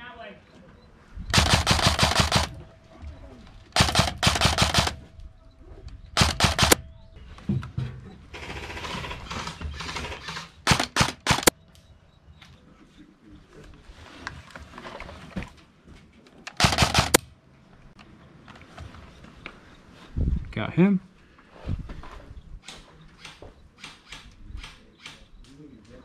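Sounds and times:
airsoft rifle firing bursts: 1.3s - 2.6s, 3.8s - 5.0s, 6.2s - 6.8s, 8.4s - 11.5s, 16.6s - 17.2s.

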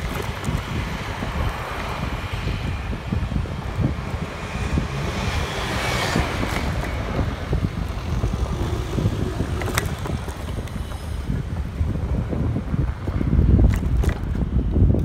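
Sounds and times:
street traffic noise: 0.0s - 15.0s
wind buffeting microphone: 0.0s - 15.0s.

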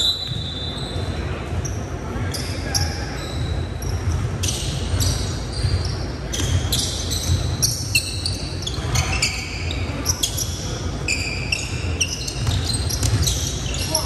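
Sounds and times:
sneakers squeaking on court: 0.0s - 14.0s
basketball bouncing: 3.8s - 7.8s, 11.7s - 13.7s.

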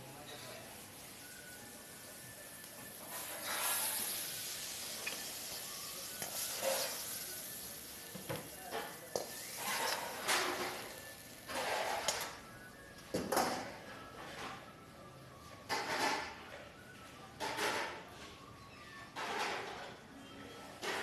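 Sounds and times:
food sizzling: 0.5s - 12.4s
metal ladle scraping: 9.5s - 10.7s.

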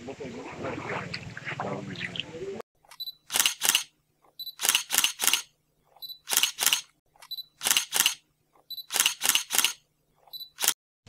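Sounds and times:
camera shutter snaps: 3.3s - 3.9s, 4.6s - 5.5s, 6.2s - 8.2s, 8.8s - 9.8s, 10.6s - 10.8s
short high beep: 8.7s - 9.0s.

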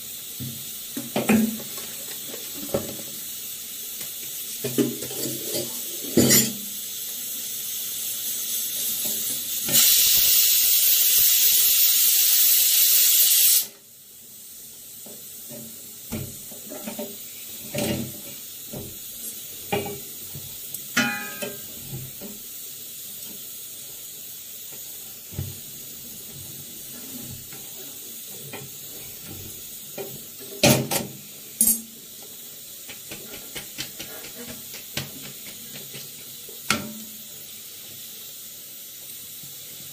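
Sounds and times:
pressure cooker steam hiss: 0.0s - 39.9s
tongs clinking on iron pan: 5.1s - 6.6s, 20.9s - 21.7s, 31.6s - 31.9s.

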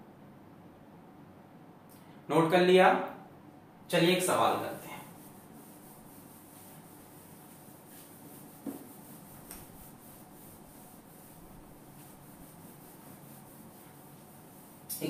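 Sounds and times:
duster rubbing whiteboard: 4.3s - 15.0s.

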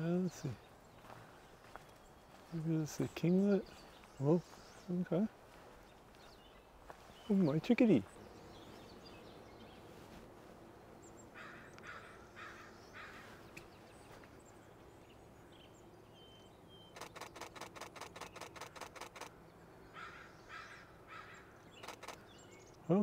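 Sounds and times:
harsh bird calls: 0.0s - 23.0s
camera shutter clicks: 17.0s - 19.3s, 21.8s - 22.2s.

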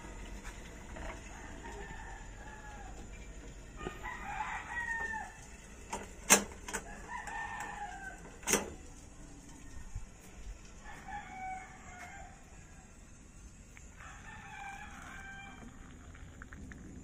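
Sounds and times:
roosters crowing: 1.0s - 5.8s, 6.6s - 13.0s, 13.9s - 15.9s.

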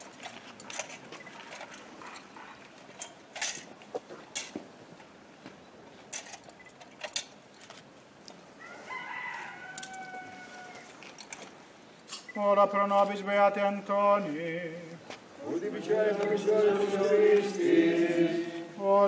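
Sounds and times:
rooster crowing: 8.6s - 11.0s.

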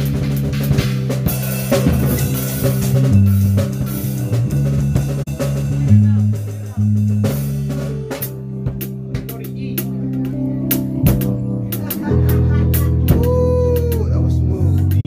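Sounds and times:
bass guitar notes: 0.0s - 15.0s
drum kit with cymbal hits: 0.0s - 15.0s
guitar line: 8.0s - 15.0s.

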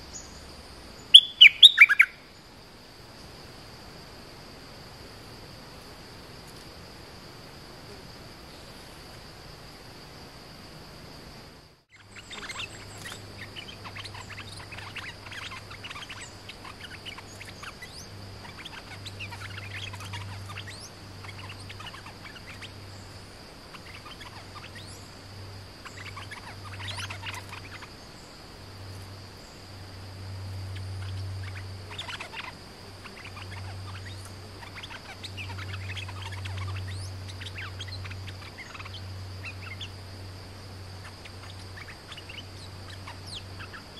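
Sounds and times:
birds chirping: 0.0s - 2.6s, 11.8s - 43.9s
high insect whine: 0.0s - 43.9s.

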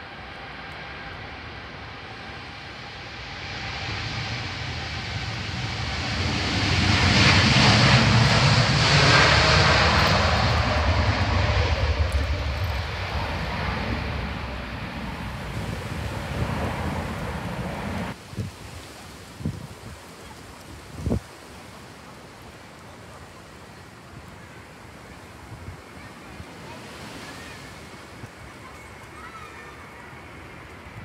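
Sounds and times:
jet airliner taking off: 0.0s - 18.2s.

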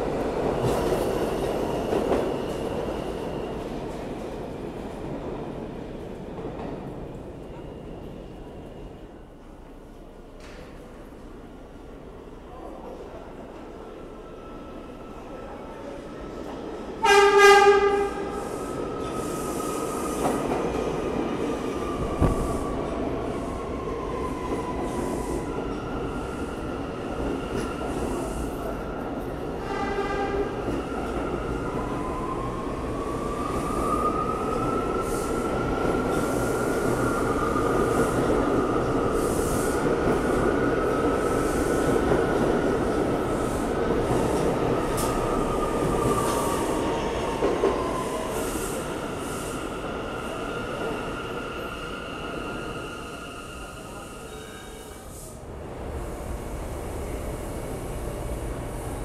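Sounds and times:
subway train horn blast: 17.0s - 18.6s, 29.6s - 30.6s.

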